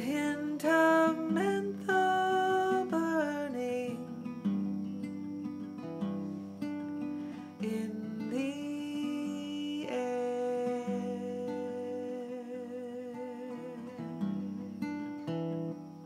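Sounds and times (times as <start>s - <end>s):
acoustic guitar: 0.0s - 16.0s
woman's wordless vocal: 7.6s - 14.2s.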